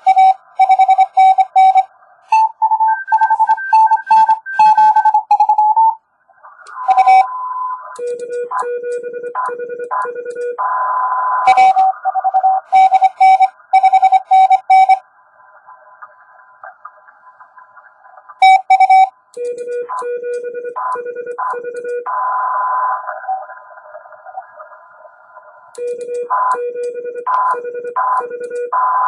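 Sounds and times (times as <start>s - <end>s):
morse code sidetone beeping: 0.0s - 6.0s, 6.7s - 10.6s, 11.4s - 15.0s, 18.4s - 22.0s
keyed morse tones: 18.4s - 22.0s.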